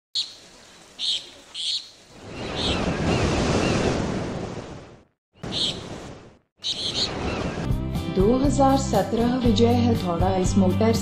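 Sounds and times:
bird chirps: 0:01.0 - 0:03.8, 0:05.4 - 0:05.9, 0:06.6 - 0:07.6
surf rushing: 0:02.1 - 0:07.7.

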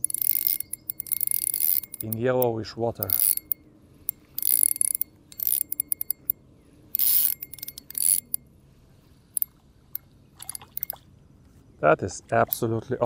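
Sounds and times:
fishing reel clicking: 0:00.0 - 0:02.4, 0:03.0 - 0:08.4, 0:10.5 - 0:11.0.

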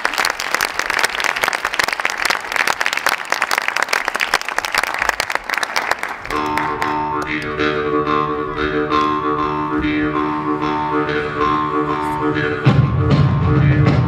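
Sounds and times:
audience applauding: 0:00.0 - 0:07.5
droning music with held tones: 0:06.3 - 0:14.0.

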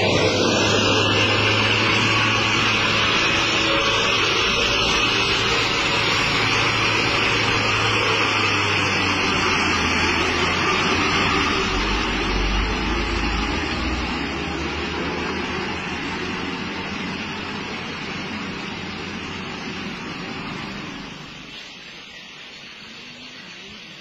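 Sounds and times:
deep low rumble: 0:00.0 - 0:17.2
truck engines droning: 0:00.0 - 0:22.0
road noise: 0:00.0 - 0:24.0.

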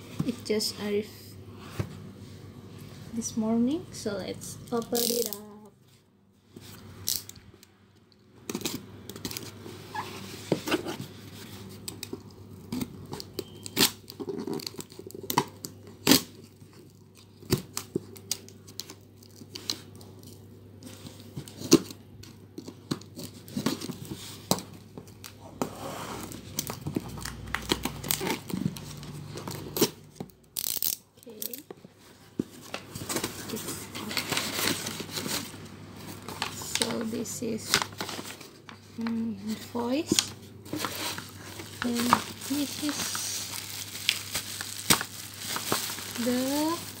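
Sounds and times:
packing tape tearing: 0:04.9 - 0:05.4, 0:07.0 - 0:07.4, 0:08.5 - 0:10.0, 0:11.8 - 0:20.4, 0:26.2 - 0:31.7, 0:40.1 - 0:47.0.

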